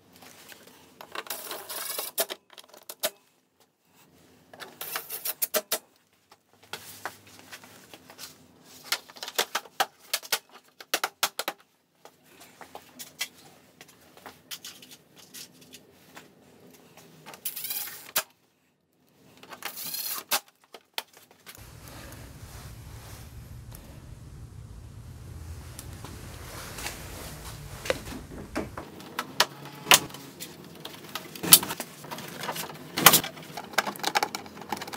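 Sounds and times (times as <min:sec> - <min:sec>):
steady low hum: 0:21.6 - 0:30.1
plastic parts clicking and rattling: 0:30.8 - 0:34.9.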